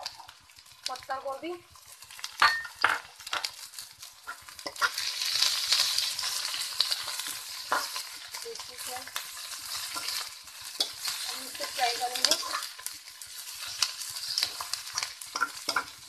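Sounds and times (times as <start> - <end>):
vegetables sizzling in hot oil: 0.0 - 16.0
metal spatula clicking against pan: 10.8 - 12.9, 13.8 - 16.0.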